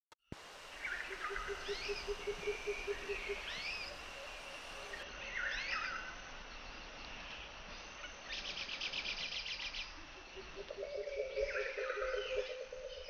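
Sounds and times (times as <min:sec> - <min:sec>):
faint insect drone: 0:00.3 - 0:13.0
low pulsing call: 0:00.4 - 0:06.2
birds whistling calls: 0:00.7 - 0:06.0.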